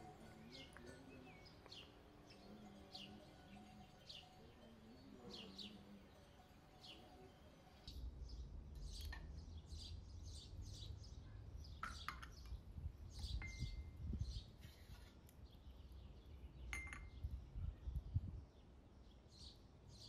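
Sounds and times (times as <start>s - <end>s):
birds chirping: 0.0s - 20.0s
glass cup and saucers clinking: 16.7s - 17.2s.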